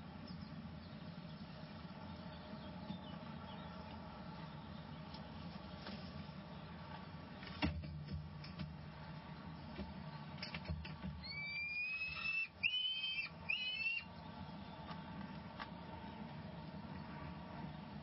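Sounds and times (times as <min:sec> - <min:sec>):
falcon chick whistled calls: 0:11.2 - 0:14.1.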